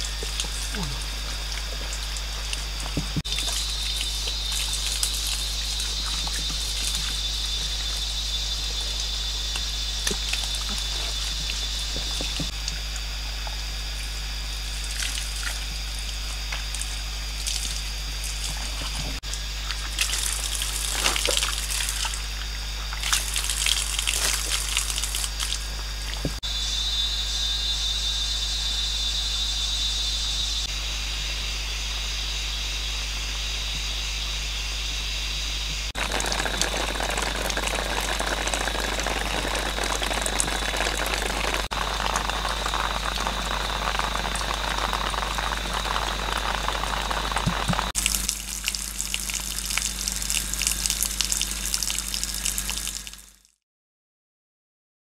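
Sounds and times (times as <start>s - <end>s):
water pouring and splashing: 0.0s - 26.4s, 36.0s - 53.5s
high-pitched insect whine: 0.0s - 53.5s.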